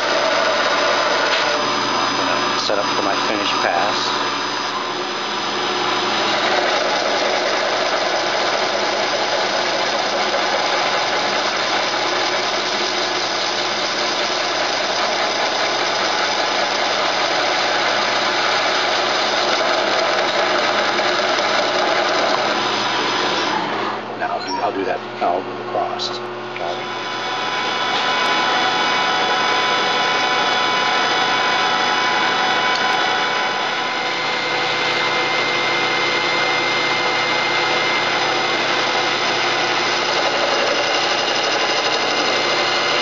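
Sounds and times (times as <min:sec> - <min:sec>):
lathe tool cutting metal: 0:00.0 - 0:24.1, 0:26.6 - 0:43.0
lathe running: 0:00.0 - 0:43.0.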